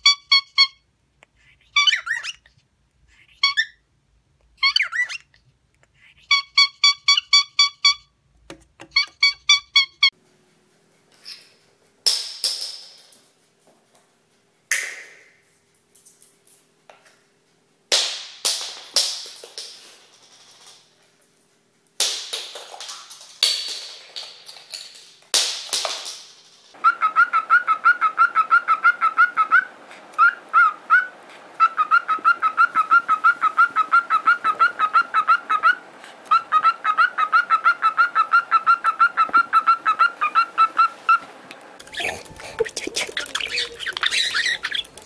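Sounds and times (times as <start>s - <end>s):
cockatiel whistling chirps: 43.1s - 45.0s.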